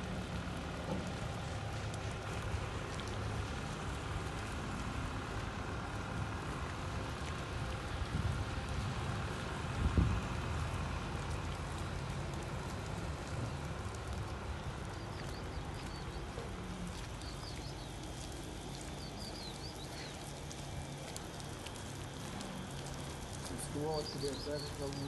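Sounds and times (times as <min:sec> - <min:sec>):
steady rain falling: 0:00.0 - 0:25.0
small birds chirping: 0:14.8 - 0:20.4, 0:23.5 - 0:25.0.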